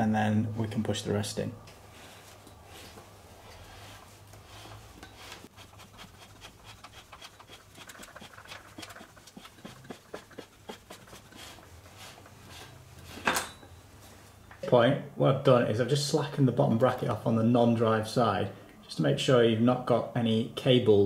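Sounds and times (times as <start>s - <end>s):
bearing press clicking and rubbing: 5.0s - 11.6s.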